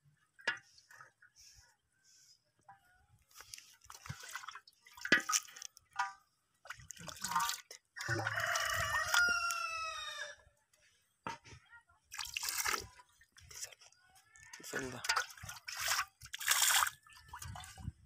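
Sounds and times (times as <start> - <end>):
water dripping and splashing: 3.3 - 9.6, 12.1 - 13.9, 14.5 - 17.9
rooster crowing: 8.0 - 10.4.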